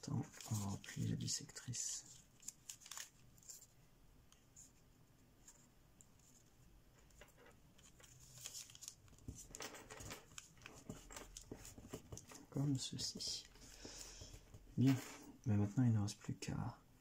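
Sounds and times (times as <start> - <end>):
paper crackling as folded: 0.0 - 3.7, 7.8 - 12.7.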